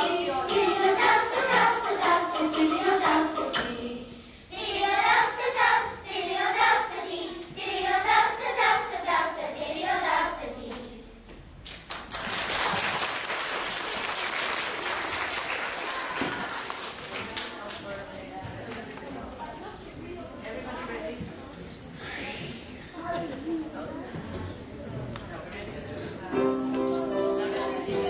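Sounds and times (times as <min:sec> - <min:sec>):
children singing: 0:00.0 - 0:11.0
applause: 0:11.7 - 0:17.9.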